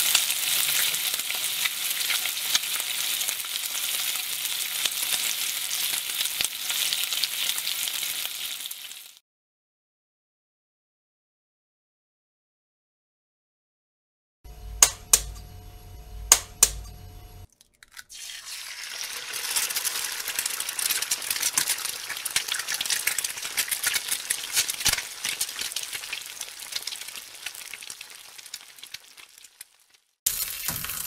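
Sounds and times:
egg sizzling in a pan: 0.0s - 9.2s, 17.9s - 31.0s
sharp clicks: 14.7s - 15.5s, 16.3s - 17.0s.

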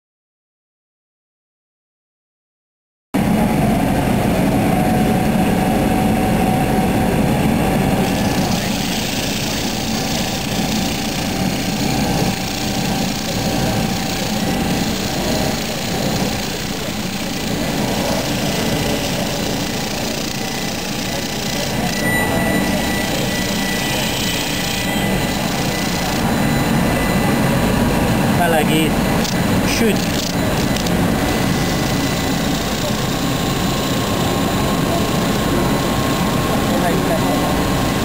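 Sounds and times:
turning tool cutting wood: 8.0s - 22.0s, 23.4s - 26.3s, 29.2s - 33.2s
wood lathe running: 8.0s - 27.5s, 28.4s - 36.5s.

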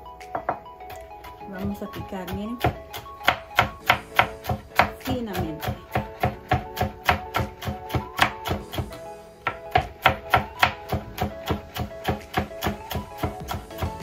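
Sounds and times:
background music: 0.0s - 14.0s
knife chopping on cutting board: 1.9s - 14.0s.

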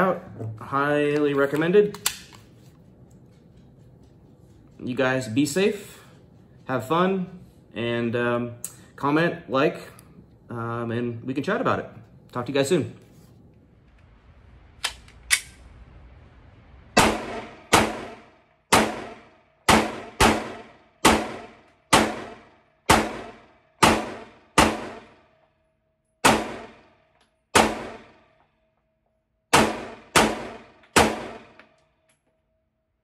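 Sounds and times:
pistol shots indoors: 14.7s - 15.8s, 16.8s - 32.6s.

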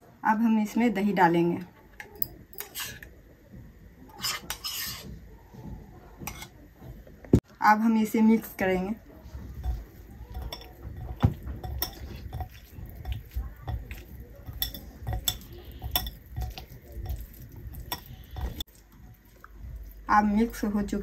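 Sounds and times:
spoon stirring thick marinade: 4.1s - 5.1s, 6.2s - 6.6s, 8.6s - 20.6s
spoon clinking against bowl: 9.6s - 18.6s.

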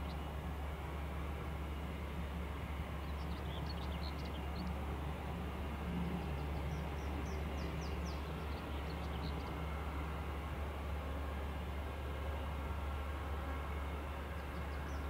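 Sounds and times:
songbirds chirping: 2.7s - 4.8s, 6.0s - 9.6s.

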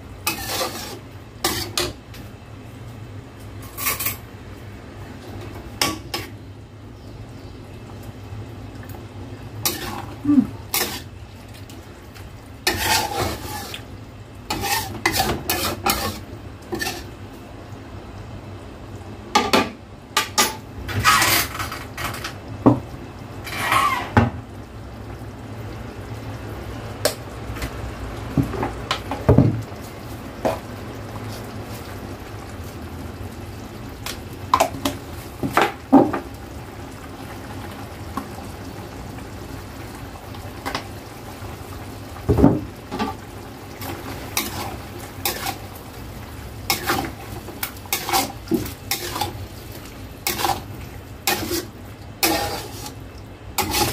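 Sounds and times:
spatula scraping a metal wok: 0.2s - 2.0s, 3.6s - 4.3s, 9.6s - 11.2s, 12.6s - 13.9s, 14.5s - 17.2s, 20.3s - 22.0s, 23.4s - 24.2s, 43.8s - 45.8s, 46.6s - 49.5s, 50.1s - 53.0s, 53.6s - 53.9s.

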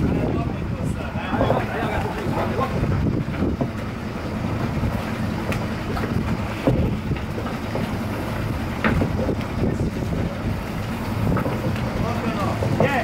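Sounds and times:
boat engines droning: 0.0s - 13.0s
wind buffeting microphone: 0.0s - 13.0s
knocks from dock: 5.4s - 10.3s, 11.2s - 13.0s.

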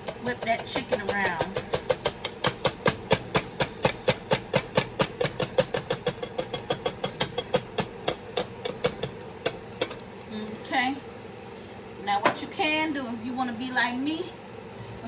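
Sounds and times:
utensil clacking in metal pot: 0.0s - 10.3s.

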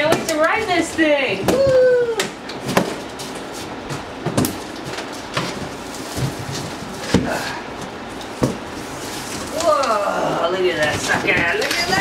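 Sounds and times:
cardboard scraping and rustling: 2.6s - 7.6s.

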